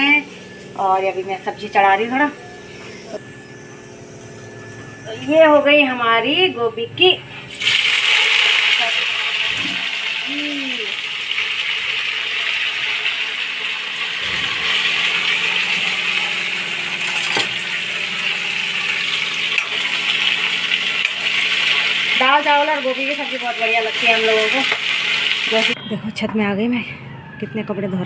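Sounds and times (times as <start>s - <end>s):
cabbage sizzling in a pan: 7.6s - 25.8s.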